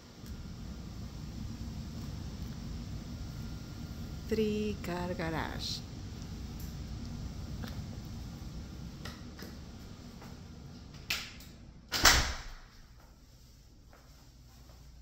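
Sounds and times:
low background rumble: 0.0s - 11.9s
door shutting: 11.9s - 12.7s.

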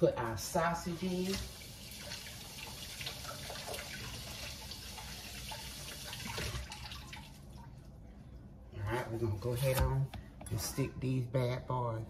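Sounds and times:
tap water running: 0.2s - 7.9s.

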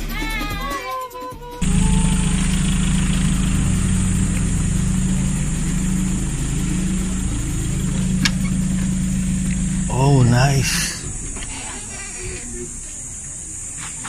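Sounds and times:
motor humming: 1.6s - 12.4s.

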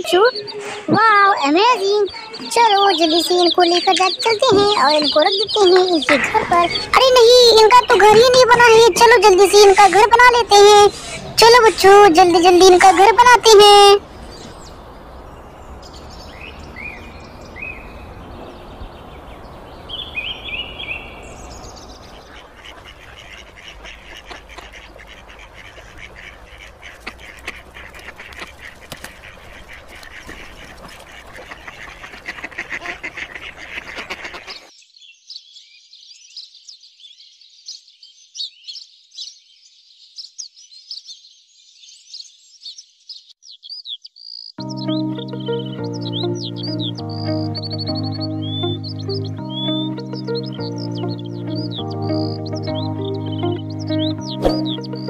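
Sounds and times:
ducks quacking: 0.0s - 14.0s, 22.0s - 34.7s, 44.6s - 55.0s
small birds chirping: 0.0s - 55.0s.

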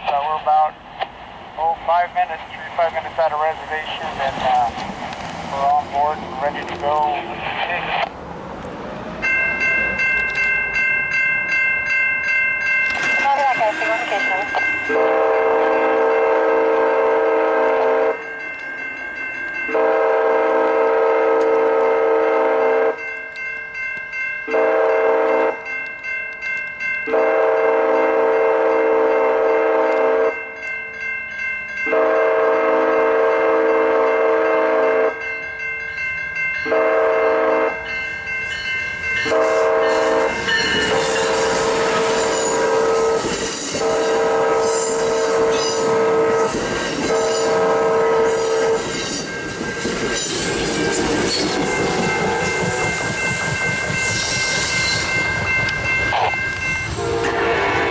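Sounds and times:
train cars rumbling past: 0.0s - 57.9s
crossing bells ringing: 1.6s - 4.8s, 5.4s - 8.1s, 9.1s - 57.9s
train horn: 14.9s - 18.2s, 19.7s - 23.0s, 24.5s - 25.6s, 27.1s - 30.4s, 31.9s - 35.2s, 36.6s - 37.8s, 39.2s - 48.9s, 56.1s - 57.9s.

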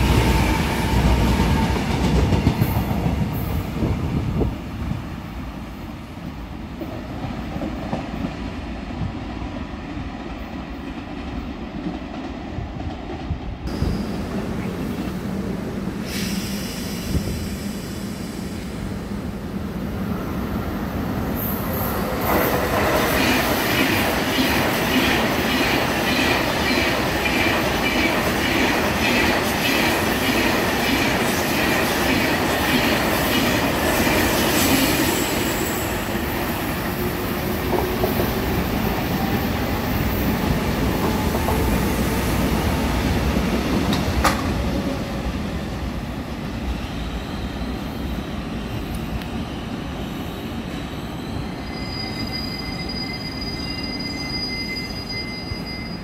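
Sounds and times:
electric train high whine: 13.7s - 56.0s.

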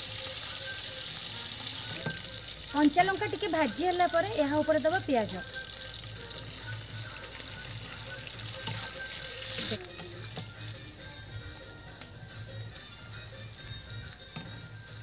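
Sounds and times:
onions sizzling in hot oil: 0.0s - 15.0s
metal spatula stirring pan: 1.8s - 3.5s, 7.7s - 10.6s.

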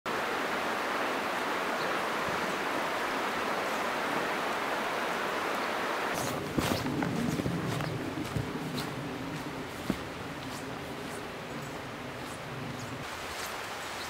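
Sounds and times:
creek water rushing over gravel: 0.1s - 14.0s
light footsteps on forest path: 6.1s - 14.0s.

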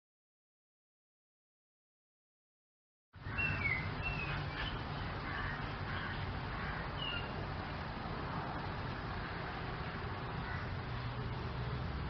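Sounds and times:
bird chirps: 3.2s - 5.0s, 6.9s - 7.4s
low rumble and hiss: 3.2s - 12.0s.

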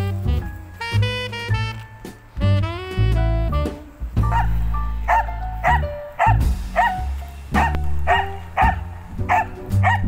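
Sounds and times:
background music: 0.0s - 10.0s
dog yipping: 4.2s - 10.0s.

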